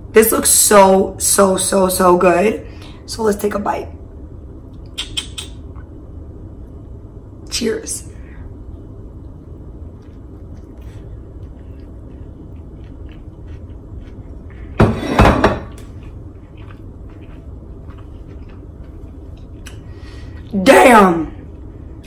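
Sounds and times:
mouth clicks: 4.8s - 5.9s
faint chewing: 9.8s - 14.8s, 15.7s - 20.5s.

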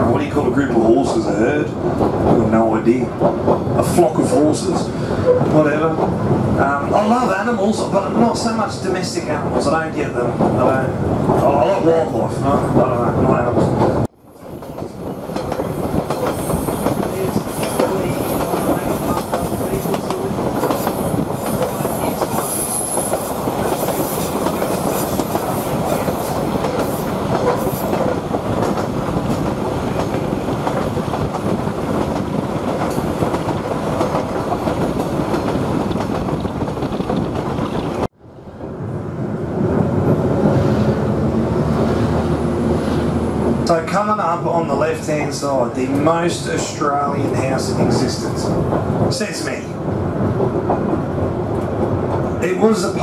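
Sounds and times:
train wheels clattering over rail joints: 0.4s - 8.6s, 13.6s - 38.1s.

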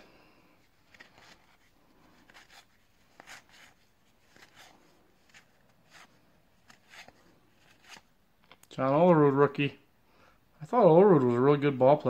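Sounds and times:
cards swishing: 0.6s - 8.1s.

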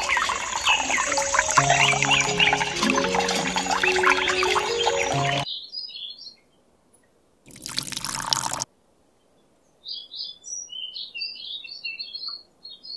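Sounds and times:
water pouring and splashing: 0.0s - 5.5s, 7.5s - 8.7s
birds chirping: 0.0s - 6.6s.

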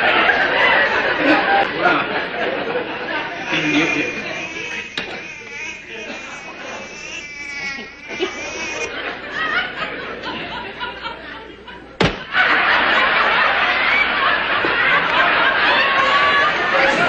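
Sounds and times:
audience laughing: 0.0s - 17.0s
sharp thump: 12.0s - 12.3s.

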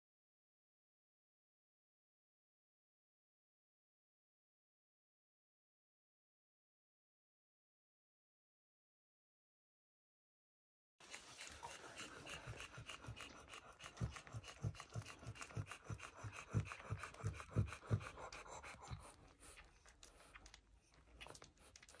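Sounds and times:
puppies suckling wet clicks: 11.0s - 22.0s.

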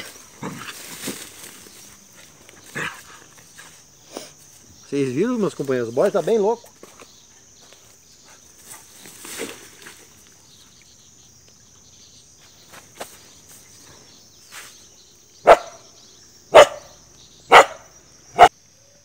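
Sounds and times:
small dog barking: 15.4s - 15.8s, 16.5s - 18.5s.

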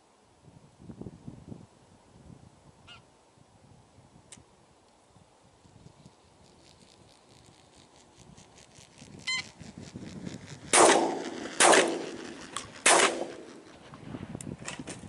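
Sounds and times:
shotgun shots with echo: 10.7s - 13.7s.

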